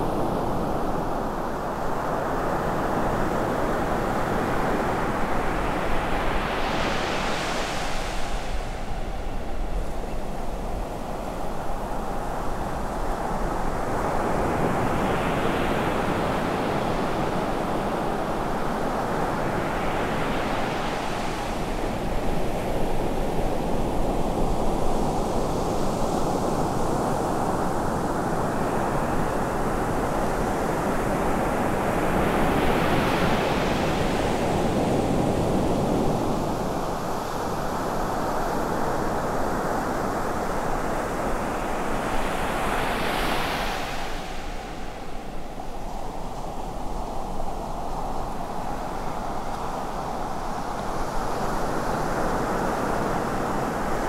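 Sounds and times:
ocean surf breaking on beach: 12.3 - 54.0.

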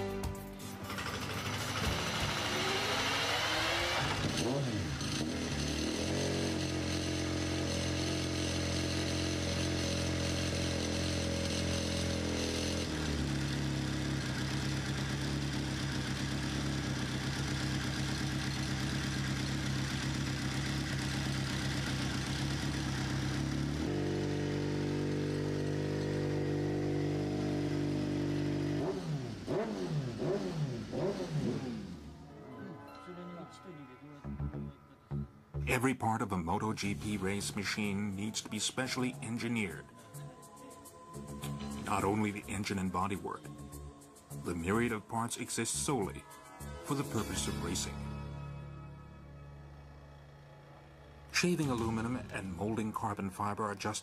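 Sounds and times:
motorcycle engine revving: 0.8 - 32.5, 45.7 - 53.9.

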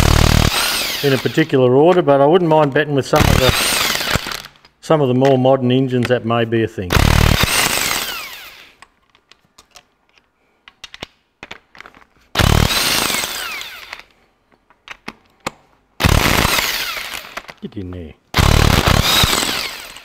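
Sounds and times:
impact wrench hammering bolts: 0.0 - 5.4, 18.3 - 20.0.

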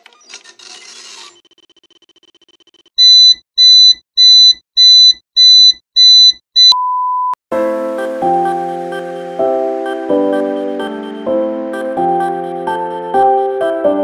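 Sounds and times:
high electronic beeps: 1.3 - 7.4
electronic music: 7.6 - 14.0.

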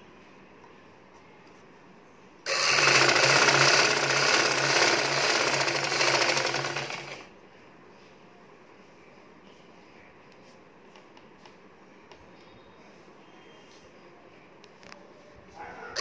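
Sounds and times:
sewing machine stitching: 2.5 - 7.3.

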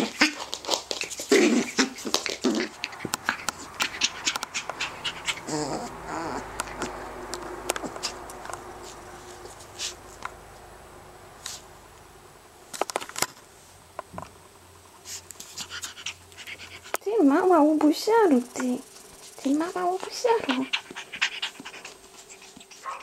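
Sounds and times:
puppy whimpering: 1.3 - 7.1, 20.2 - 23.0
puppy barking: 2.7 - 7.0, 22.8 - 23.0.

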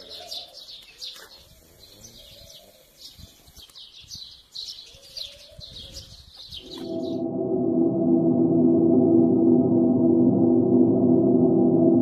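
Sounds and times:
small birds chirping: 0.0 - 7.2
low steady ringing tone: 6.6 - 12.0.

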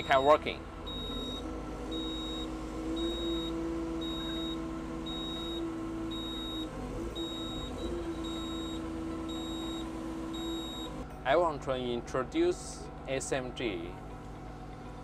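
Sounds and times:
hydraulic whine: 0.0 - 11.1
excavator engine droning: 0.0 - 15.0
short high beeps: 0.9 - 10.9.

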